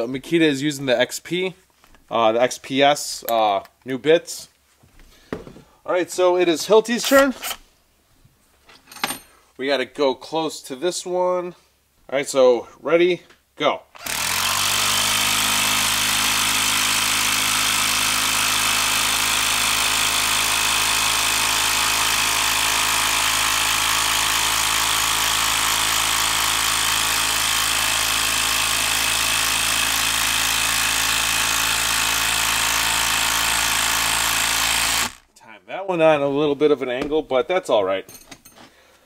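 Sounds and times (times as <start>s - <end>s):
impact driver hammering: 14.0s - 35.2s.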